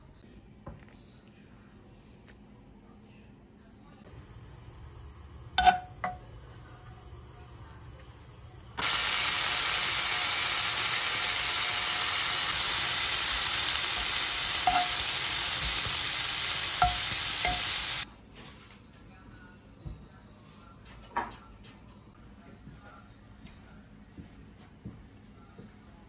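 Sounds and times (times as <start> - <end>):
metal tongs clinking on pan: 5.6 - 6.3, 14.6 - 15.2, 16.8 - 17.8
bacon sizzling in a frying pan: 8.6 - 18.1.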